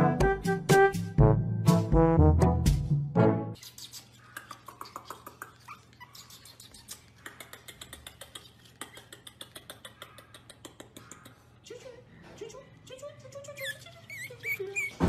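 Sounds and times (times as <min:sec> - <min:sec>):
puppies whimpering faintly: 0:03.6 - 0:07.8, 0:13.4 - 0:15.0.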